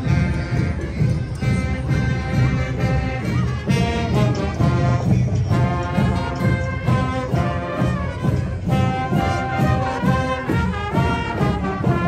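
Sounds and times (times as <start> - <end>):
marching band brass: 0.0 - 12.0
marching drums: 0.0 - 12.0.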